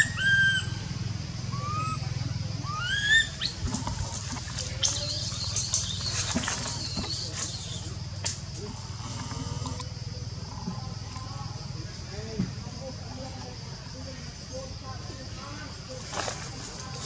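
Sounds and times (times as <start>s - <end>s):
baby monkey distress cries: 2.6s - 7.9s
branches and leaves rustling: 3.4s - 8.6s, 15.9s - 17.0s.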